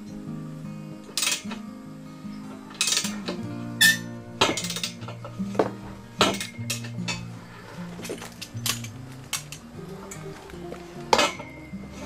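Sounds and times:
background music with low notes: 0.0 - 12.0
metallic clanks and clinks: 1.0 - 1.6, 2.7 - 7.3, 7.9 - 9.6, 11.1 - 12.0.

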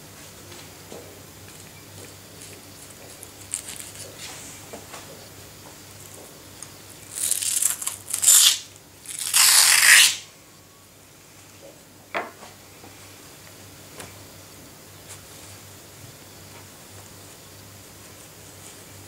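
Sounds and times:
fish skin tearing: 7.1 - 10.2.

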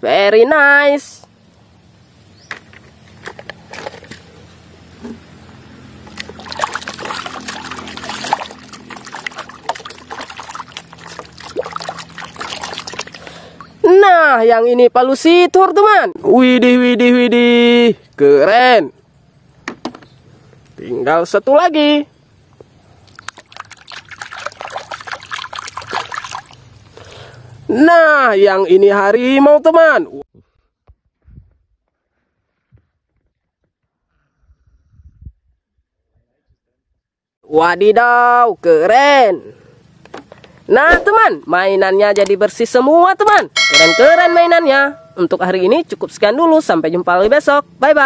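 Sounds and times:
water sloshing and splashing: 6.0 - 13.8, 23.0 - 26.9.

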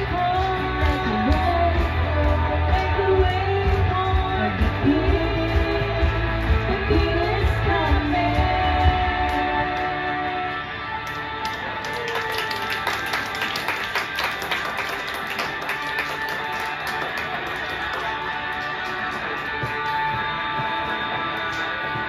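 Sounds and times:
two women singing a duet: 0.0 - 10.5.

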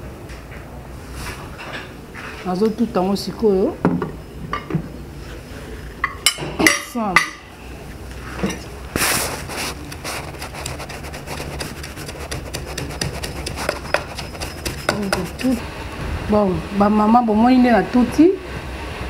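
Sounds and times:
scraping rub: 8.9 - 15.6
light tapping: 9.8 - 15.6
utensils and dishes clinking: 11.4 - 15.6.

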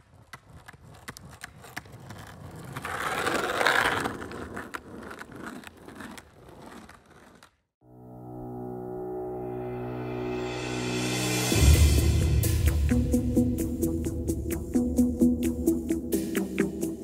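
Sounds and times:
rolling scraping noise: 1.7 - 7.5.

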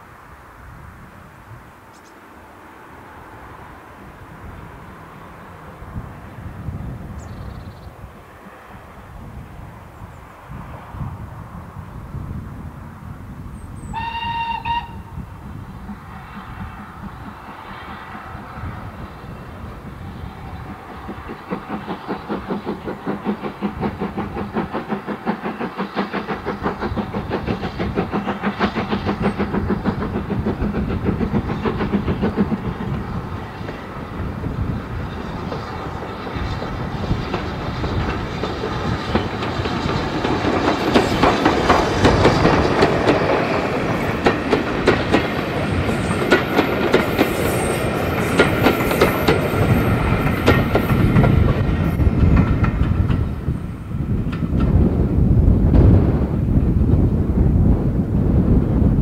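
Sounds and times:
steam locomotive exhaust beating: 10.5 - 59.0
train wheels clicking over rail joints: 15.6 - 57.2.

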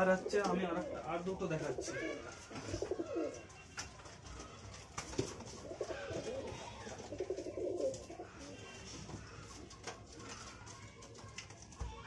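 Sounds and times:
pigeons cooing: 0.0 - 3.6, 5.2 - 10.7.

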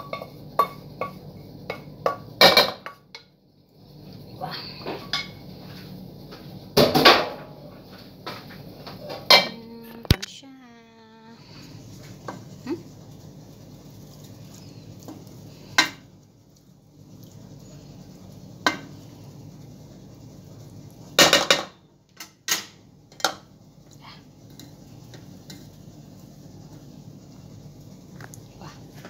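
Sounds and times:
steady low hum: 0.0 - 29.0
wooden spoon stirring in pot: 11.4 - 21.1.

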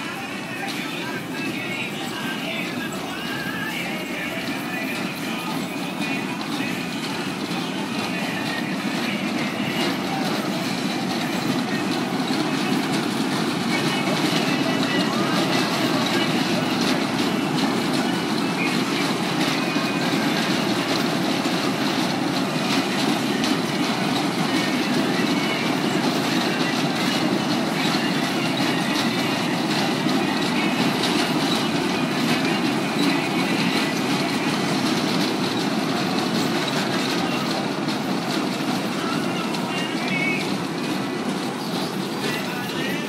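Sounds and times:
ride cars rumbling and rattling: 0.0 - 43.0.

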